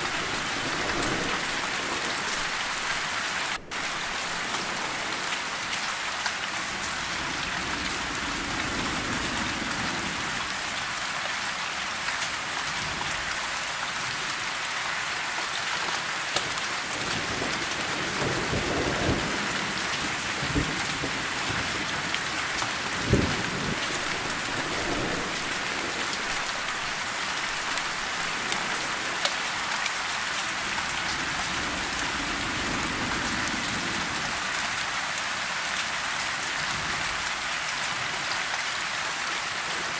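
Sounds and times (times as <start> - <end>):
thunder rumbling: 0.0 - 5.9, 17.1 - 29.3
steady rain falling: 0.0 - 39.9.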